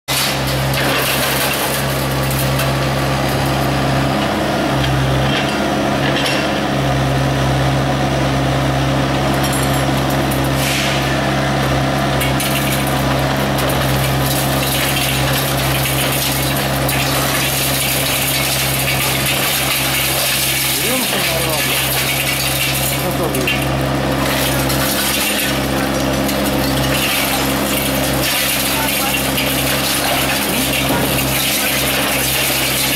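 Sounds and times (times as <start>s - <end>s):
rebar and debris clinking: 0.1s - 2.9s, 12.2s - 32.9s
diesel engine running: 0.1s - 32.9s
concrete crunching: 12.2s - 32.9s.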